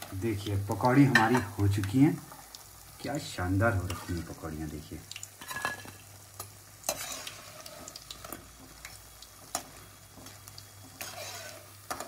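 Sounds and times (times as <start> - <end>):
food sizzling in hot oil: 0.0 - 12.0
metal spoon scraping pan: 5.4 - 6.0, 6.9 - 8.0, 9.5 - 12.0.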